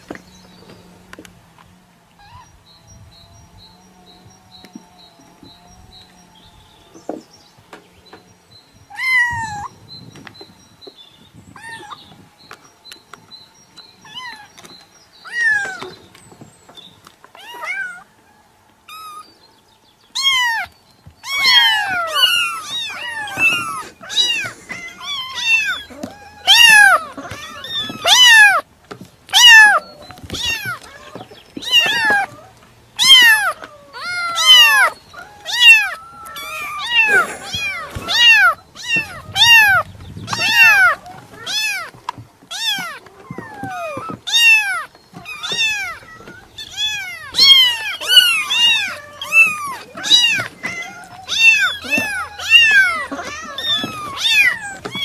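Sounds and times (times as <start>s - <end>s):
cat meowing: 8.9s - 9.7s, 17.4s - 18.0s, 20.2s - 28.6s, 29.3s - 55.0s.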